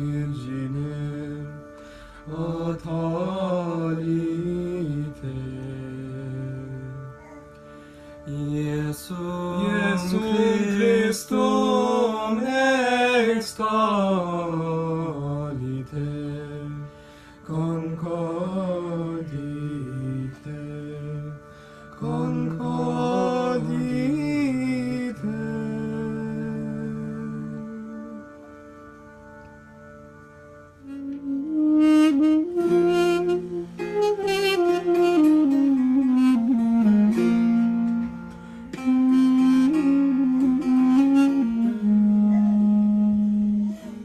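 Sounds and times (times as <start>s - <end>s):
person singing devotional song: 0.0s - 28.9s
held accompanying notes: 0.0s - 44.0s.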